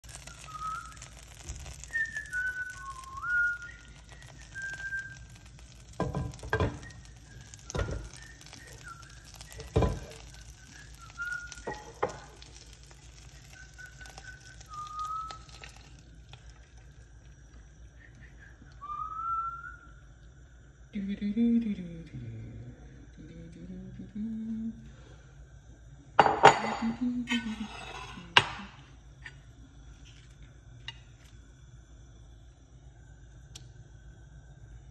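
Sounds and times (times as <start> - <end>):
butter sizzling in a frying pan: 0.0 - 18.0
person whistling a tune: 0.1 - 12.4, 13.2 - 15.9, 18.0 - 20.0.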